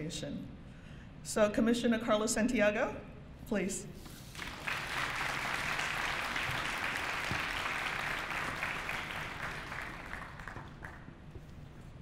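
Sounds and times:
audience applauding: 0:04.3 - 0:11.2.

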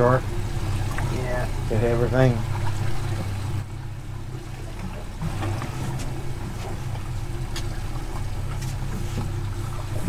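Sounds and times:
outboard motors idling: 0:00.0 - 0:10.0.

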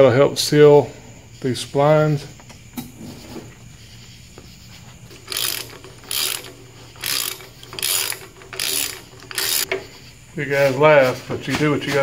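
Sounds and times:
socket ratchet clicking: 0:05.2 - 0:09.7.

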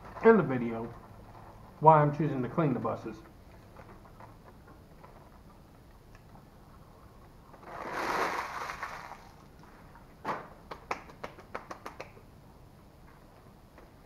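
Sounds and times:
food wrapper rustling: 0:07.6 - 0:09.5
light hand claps: 0:10.7 - 0:12.2.

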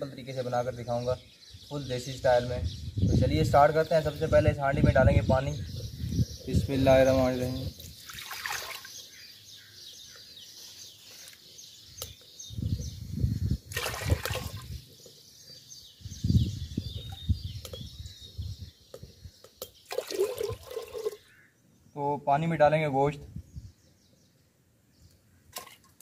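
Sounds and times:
birds chirping faintly: 0:00.0 - 0:26.0
water pouring and splashing: 0:07.9 - 0:09.0, 0:13.7 - 0:14.8, 0:19.9 - 0:21.3.

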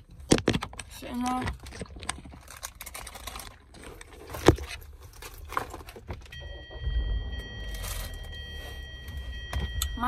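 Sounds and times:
low rumble: 0:06.4 - 0:10.0
steady electronic tone: 0:06.4 - 0:10.0.

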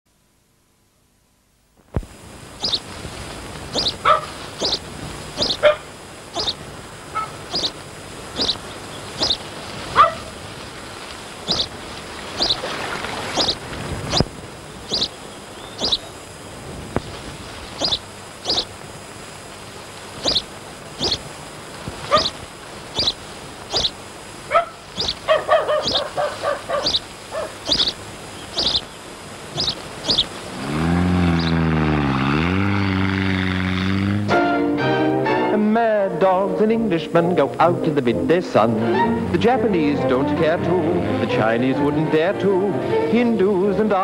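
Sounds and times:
steady hiss: 0:00.1 - 0:33.9
dog yapping: 0:03.8 - 0:04.8, 0:05.4 - 0:07.8, 0:09.2 - 0:10.4, 0:14.9 - 0:15.1, 0:15.8 - 0:16.0, 0:17.8 - 0:18.7, 0:20.2 - 0:21.2, 0:22.0 - 0:22.4, 0:23.0 - 0:28.8, 0:29.6 - 0:30.3.

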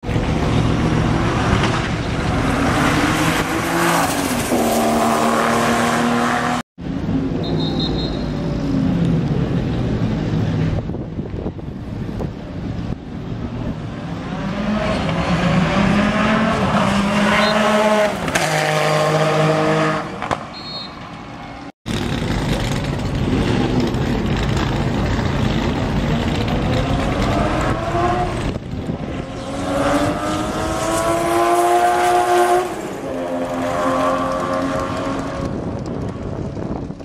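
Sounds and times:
race car engine passing: 0:00.6 - 0:06.6, 0:13.7 - 0:20.5.

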